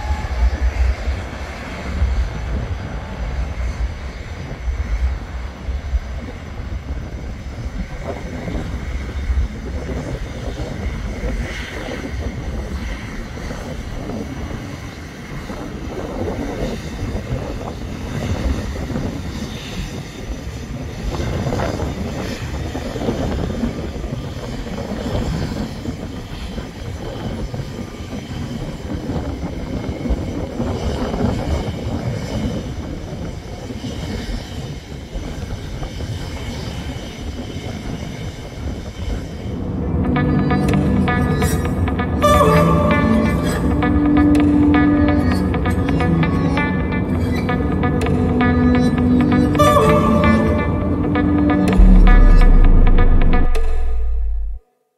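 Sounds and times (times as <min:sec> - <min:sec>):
jet engines rumbling: 0:00.0 - 0:21.1.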